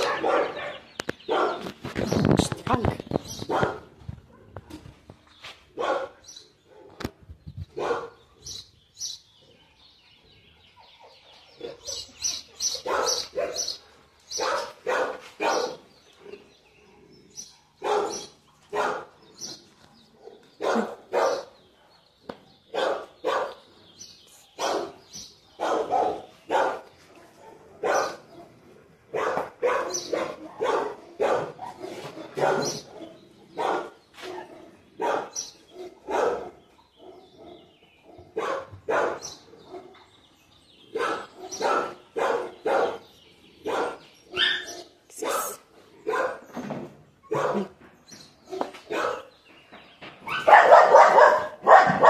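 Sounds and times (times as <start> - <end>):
dog barking: 0.0 - 1.7, 3.5 - 4.5, 5.8 - 7.0, 7.8 - 8.2, 12.8 - 13.8, 14.4 - 15.9, 17.6 - 19.2, 20.2 - 22.0, 22.7 - 23.6, 24.6 - 25.0, 25.6 - 40.0, 40.9 - 46.5, 47.3 - 47.8, 48.5 - 49.3, 50.3 - 52.0.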